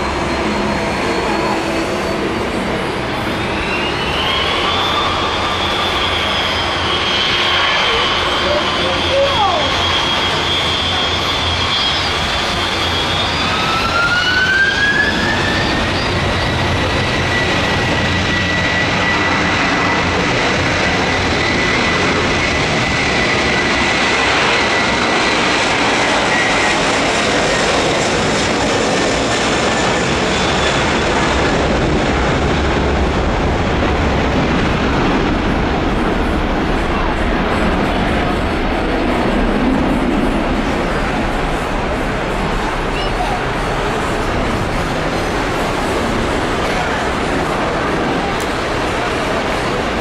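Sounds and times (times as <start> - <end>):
jet engines roaring with whine: 0.0 - 50.0.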